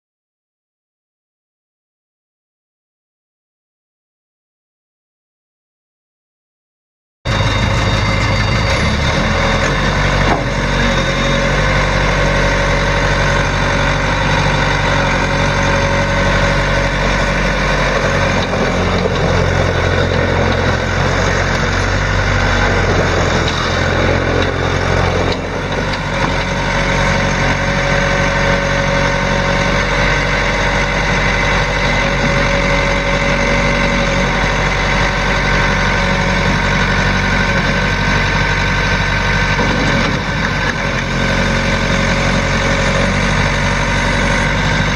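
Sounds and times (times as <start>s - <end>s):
diesel engine running: 7.3s - 44.9s.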